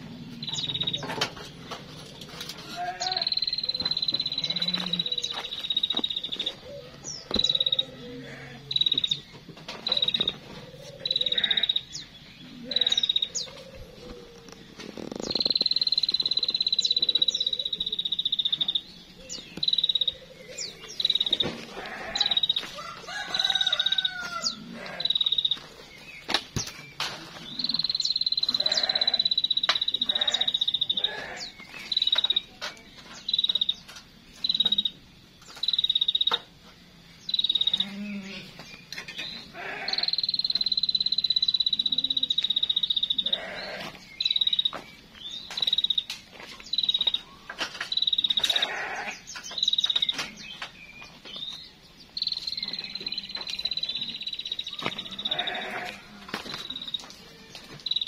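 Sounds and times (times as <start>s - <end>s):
small birds chirping: 0.0s - 58.0s
animal trilling calls: 9.9s - 11.9s, 23.4s - 25.5s, 27.6s - 31.5s, 39.5s - 40.5s, 43.1s - 44.0s, 48.3s - 49.2s, 54.7s - 56.1s.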